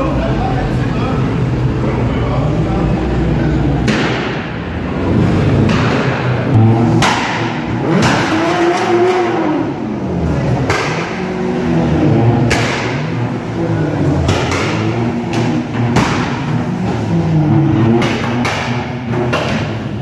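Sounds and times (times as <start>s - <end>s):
car engines revving: 0.0s - 20.0s
sharp bangs: 3.8s - 4.7s, 5.3s - 9.4s.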